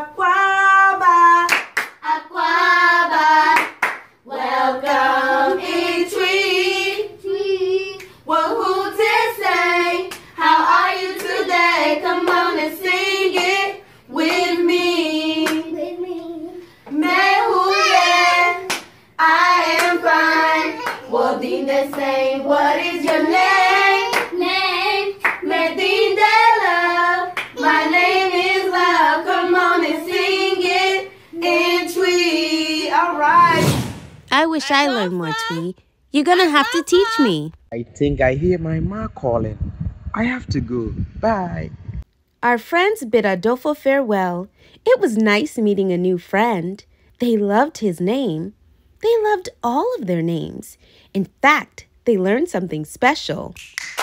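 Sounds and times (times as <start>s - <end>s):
children and woman singing: 0.0s - 33.7s, 34.3s - 35.8s
hand clapping: 1.5s - 2.0s, 3.6s - 4.1s, 24.1s - 24.4s, 27.4s - 27.6s, 53.6s - 54.0s.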